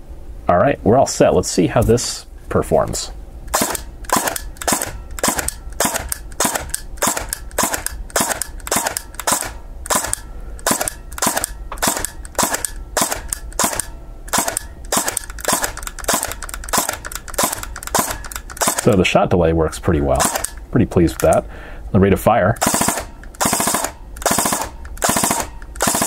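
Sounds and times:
airsoft gun shots: 3.5 - 19.0, 20.2 - 20.6, 22.6 - 26.0.

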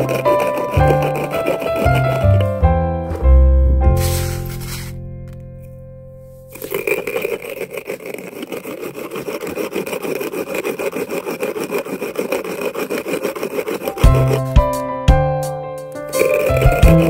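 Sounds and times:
brick scraping over brick: 0.0 - 5.0, 6.3 - 14.9, 16.0 - 17.0
music: 0.0 - 6.6, 13.9 - 17.0.

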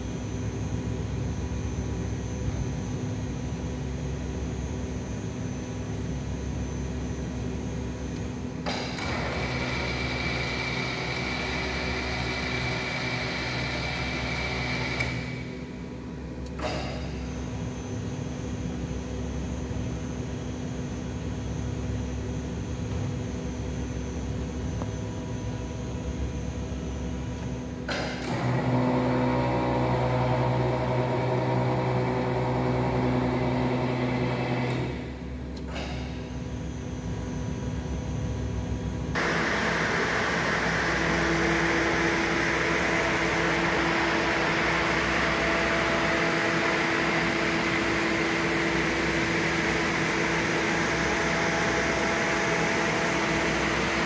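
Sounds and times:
planer motor hum: 8.2 - 15.4, 27.4 - 35.0, 39.2 - 54.0.

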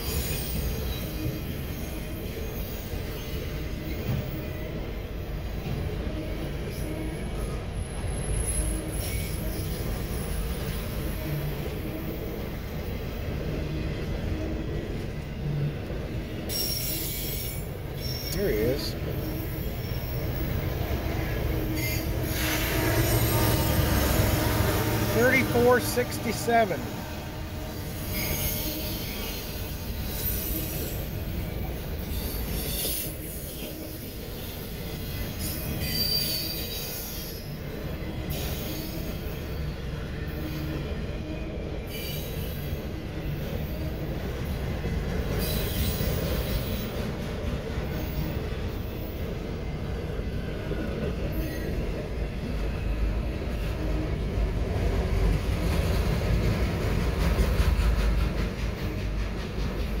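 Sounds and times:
train wheels rumbling on rail: 0.0 - 60.0
wheel squeals: 16.5 - 25.1, 27.9 - 31.2, 32.0 - 37.6.

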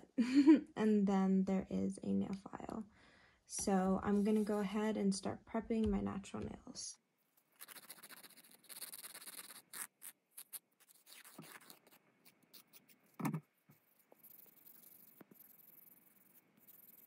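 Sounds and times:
nail file scraping fingernail: 7.6 - 17.0.

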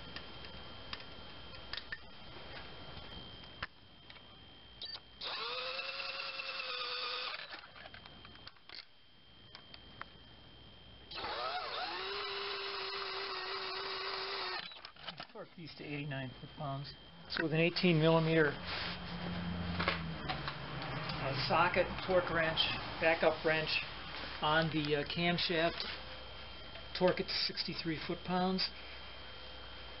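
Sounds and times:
power drill whining: 4.9 - 7.9, 11.1 - 15.0.

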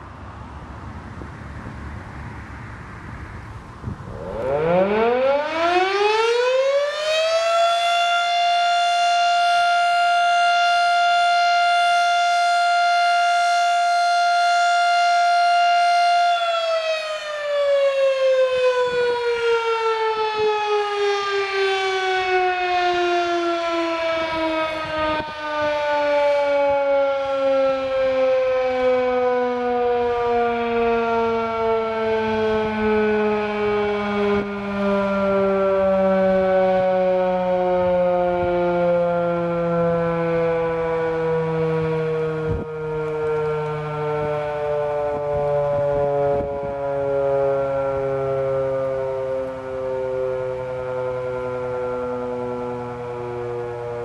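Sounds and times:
warning siren wailing: 0.0 - 54.0.

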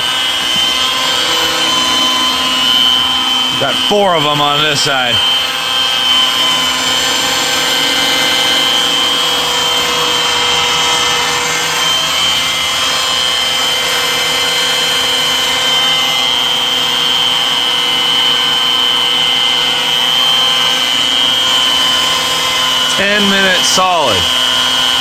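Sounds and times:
electric drill whining: 0.0 - 25.0.

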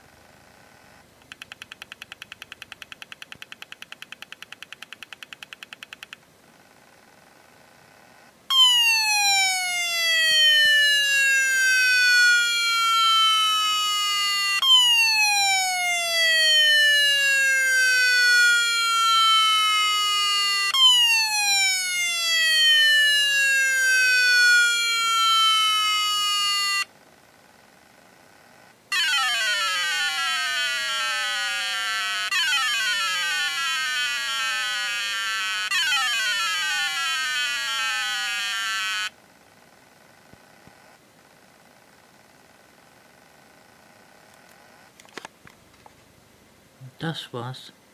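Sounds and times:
hard drive whine gliding down: 8.0 - 26.9, 28.5 - 39.2.

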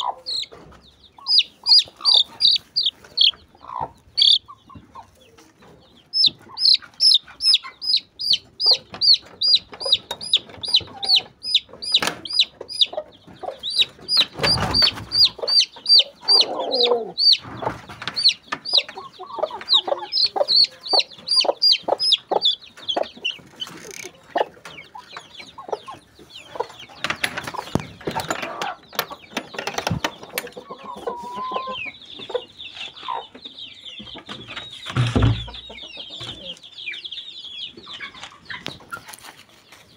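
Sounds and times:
chickens peeping: 0.0 - 39.9
knocks and rustles: 27.0 - 30.5, 34.0 - 36.4.

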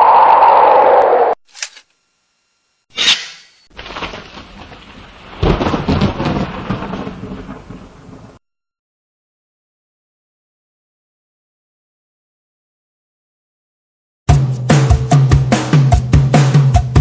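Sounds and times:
thunderclap rumbling: 3.9 - 8.4.

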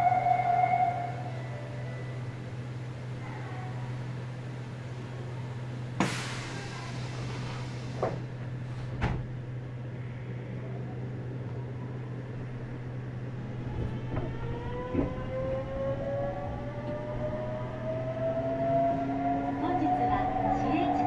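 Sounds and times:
electric train humming: 0.0 - 21.0
thump: 9.0 - 9.3
inverter rising whine: 10.0 - 21.0.

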